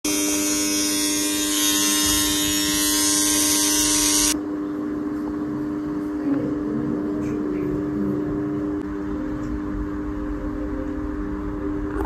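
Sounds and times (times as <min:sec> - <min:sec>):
small electric motor buzzing: 0:00.0 - 0:04.4
steady hum: 0:00.0 - 0:12.0.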